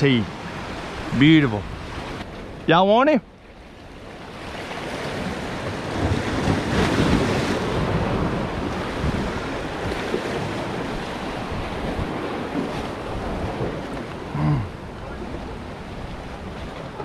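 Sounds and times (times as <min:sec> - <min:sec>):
small waves splashing against rocks: 0:04.0 - 0:14.4
wind buffeting microphone: 0:04.0 - 0:17.0.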